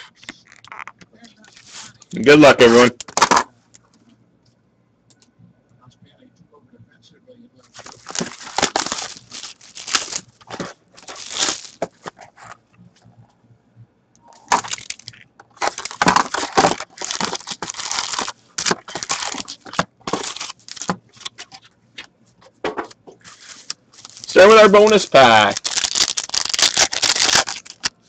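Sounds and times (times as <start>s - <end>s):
foil packs crinkling: 7.7s - 12.4s, 14.5s - 21.3s, 23.3s - 28.0s.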